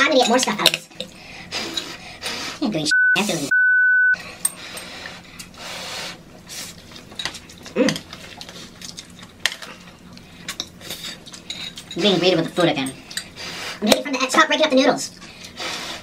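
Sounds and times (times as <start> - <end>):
people eating noodles: 0.1 - 2.6, 4.2 - 14.1, 15.0 - 16.0
censor bleep: 2.9 - 4.2
chopsticks and fork clinking: 10.4 - 13.3.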